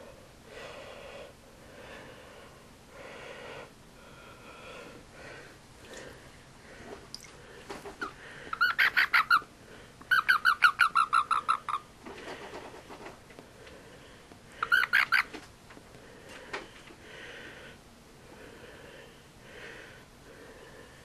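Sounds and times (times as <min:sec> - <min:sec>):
frog chirping: 0:10.1 - 0:11.9.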